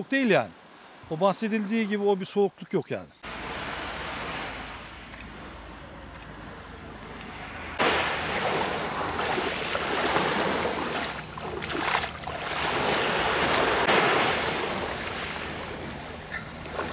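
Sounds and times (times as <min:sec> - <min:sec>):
small waves washing ashore: 0:03.2 - 0:16.9
water splashing around legs: 0:07.8 - 0:16.9.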